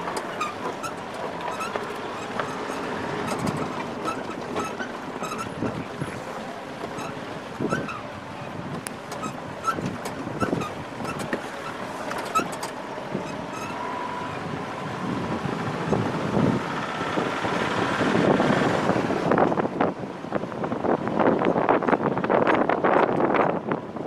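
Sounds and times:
knocks and rattles: 0:00.0 - 0:06.1
van engine and tyre noise: 0:00.0 - 0:24.0
wind buffeting microphone: 0:00.0 - 0:24.0.

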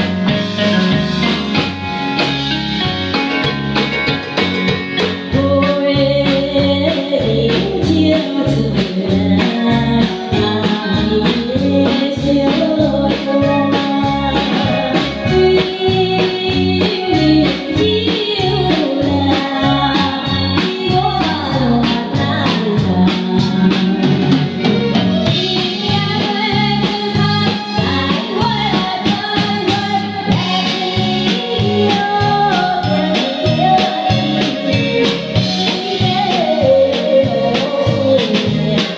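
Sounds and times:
drum kit: 0:00.0 - 0:38.9
electric guitar: 0:00.0 - 0:38.9
organ-like electronic keyboard: 0:00.0 - 0:38.9
woman singing: 0:05.3 - 0:24.4, 0:25.2 - 0:38.9.

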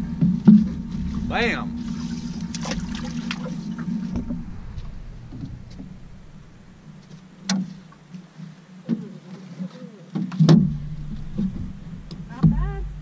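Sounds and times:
boat motor running: 0:00.0 - 0:07.9, 0:10.7 - 0:13.0.

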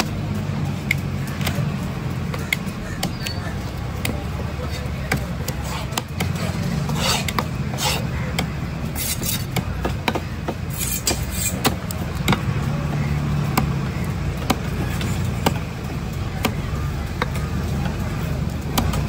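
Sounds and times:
cleaver chopping on wooden block: 0:05.1 - 0:12.5
fish scales rasping: 0:05.6 - 0:08.1, 0:08.9 - 0:09.5, 0:10.7 - 0:11.7.

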